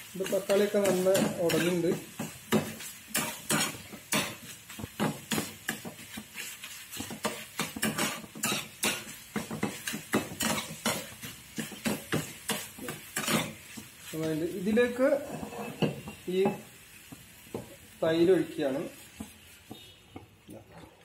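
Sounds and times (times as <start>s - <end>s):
metal spatula scraping a pan: 0.1s - 16.3s.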